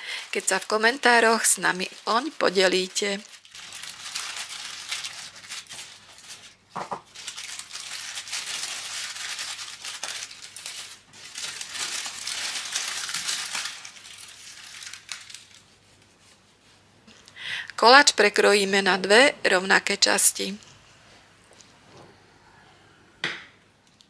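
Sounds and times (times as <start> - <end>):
baking parchment crinkling: 0.0 - 16.5.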